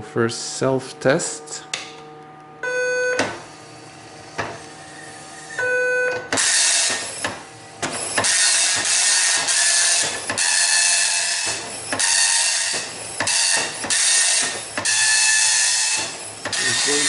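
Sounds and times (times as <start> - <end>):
short beep: 2.6 - 3.2, 5.6 - 6.2
dot matrix printer printing: 6.2 - 17.0.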